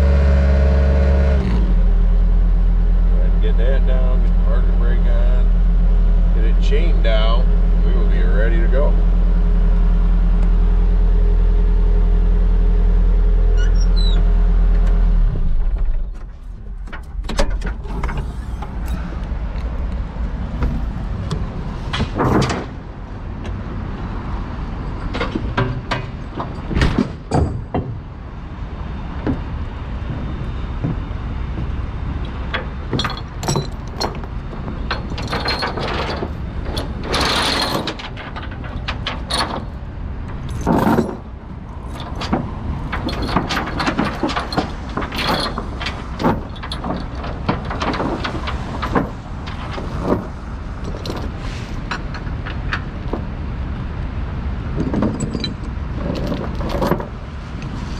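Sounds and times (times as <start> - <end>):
irregular knocks and clanks: 15.5 - 22.8, 25.0 - 28.1, 29.2 - 53.3.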